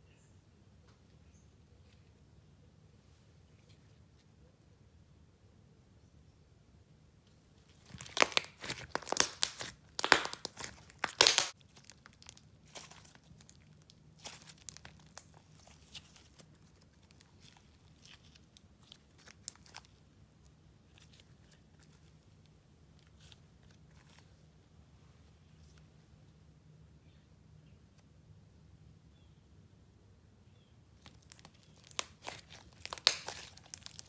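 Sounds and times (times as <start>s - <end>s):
slime crackling and popping: 7.8s - 22.2s, 31.0s - 34.0s.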